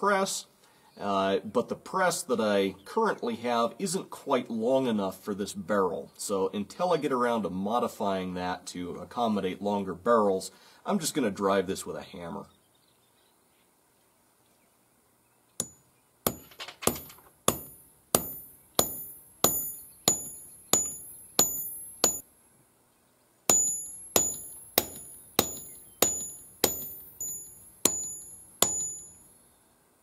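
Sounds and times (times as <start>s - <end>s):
sledgehammer striking steel rod: 15.6s - 22.2s, 23.5s - 29.3s.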